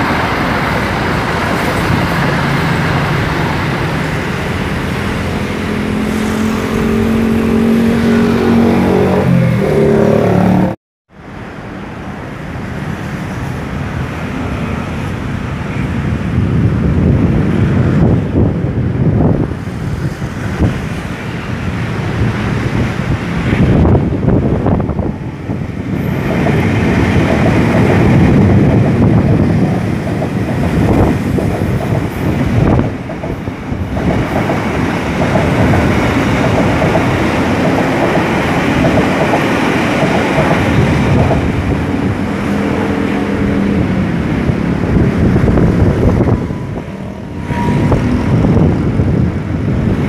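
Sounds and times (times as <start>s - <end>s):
train wheels rumbling on rails: 0.0s - 10.4s, 11.3s - 50.0s
train wheels clickety-clack: 25.8s - 41.8s.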